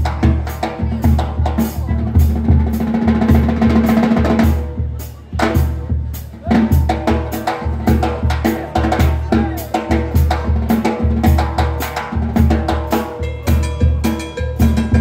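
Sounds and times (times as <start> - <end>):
bass drum and cymbal beat: 0.0 - 15.0
brass band playing loudly: 0.0 - 15.0.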